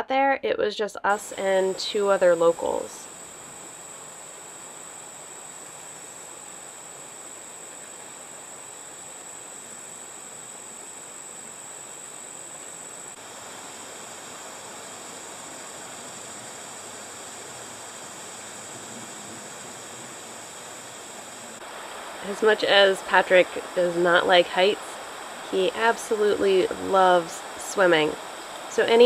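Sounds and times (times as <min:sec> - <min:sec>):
creek water rushing over rocks: 0:13.2 - 0:28.8.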